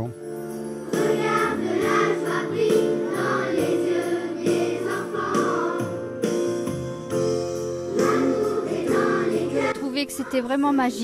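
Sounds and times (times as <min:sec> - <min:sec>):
music with steady beat: 0:00.2 - 0:09.7
children's choir singing: 0:00.8 - 0:06.2, 0:07.9 - 0:10.5.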